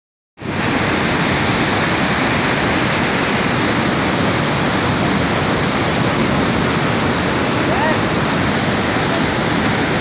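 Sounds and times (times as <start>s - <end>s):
waterfall rushing over rocks: 0.4s - 10.0s.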